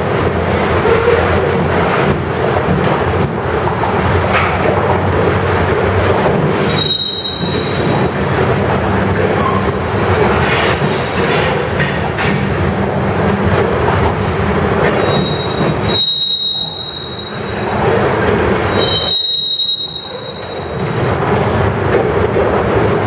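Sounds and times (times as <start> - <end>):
freight train wheels rumbling on track: 0.0 - 23.0
high thin wheel squeal: 6.7 - 8.0, 15.0 - 17.7, 18.7 - 20.9.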